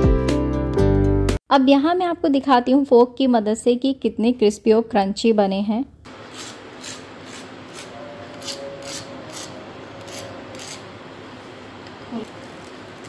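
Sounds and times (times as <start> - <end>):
fork scraping fried crust: 6.2 - 10.9.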